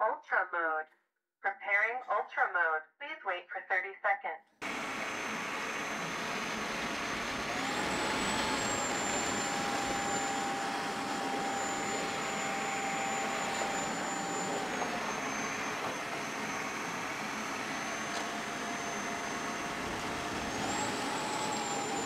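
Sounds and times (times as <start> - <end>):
wet-dry vacuum running: 4.6 - 22.0.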